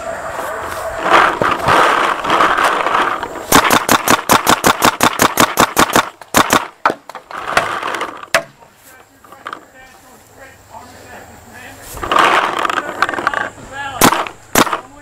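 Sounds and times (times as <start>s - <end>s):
loud rushing noise: 0.0s - 4.3s
paintball marker firing: 2.7s - 8.6s, 14.0s - 15.0s.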